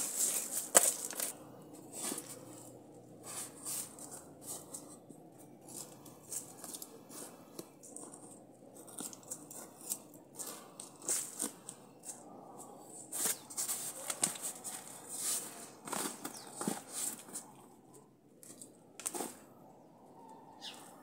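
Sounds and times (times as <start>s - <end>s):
dry leaves rustling: 0.0s - 2.6s
hands scraping through dry soil: 0.0s - 17.6s.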